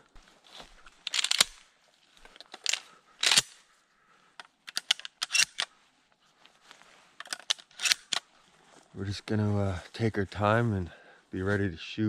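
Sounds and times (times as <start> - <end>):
shotgun loading clicks: 1.0 - 1.6, 2.3 - 3.6, 4.4 - 5.7, 7.2 - 8.3.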